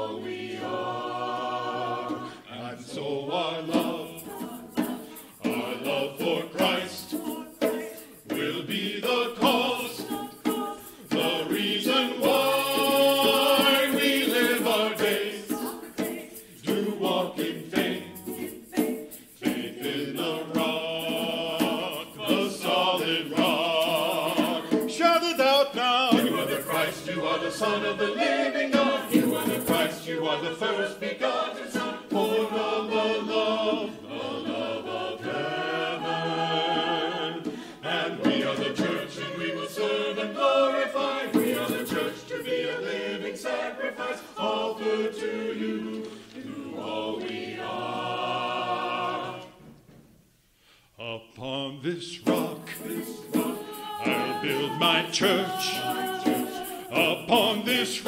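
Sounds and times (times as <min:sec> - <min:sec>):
mixed choir singing: 0:00.0 - 0:49.8, 0:51.0 - 0:58.0.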